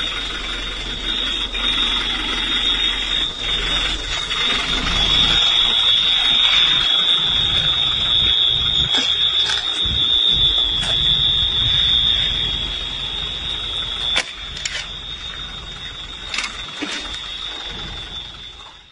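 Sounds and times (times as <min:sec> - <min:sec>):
high-pitched electronic alarm tone: 0:00.0 - 0:18.9
low rumbling wind: 0:00.0 - 0:18.9
handling noise: 0:16.2 - 0:17.7.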